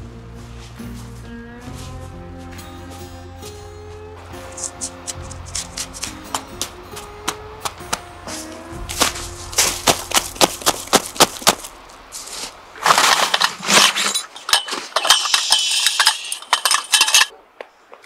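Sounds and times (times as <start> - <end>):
rustling and scraping: 0.5 - 3.2, 3.8 - 7.1, 8.2 - 17.3
scraping crunch: 0.5 - 17.4
crunches and knocks in snow: 4.5 - 15.4.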